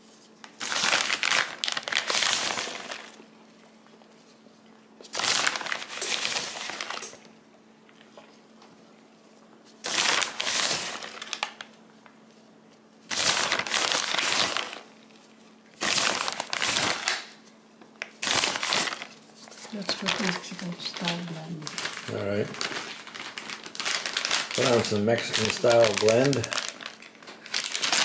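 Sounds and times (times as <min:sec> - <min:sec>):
faint steady hum: 0:00.0 - 0:28.0
plastic bag crinkling: 0:00.4 - 0:03.2, 0:05.0 - 0:07.3, 0:09.8 - 0:12.1, 0:13.1 - 0:28.0.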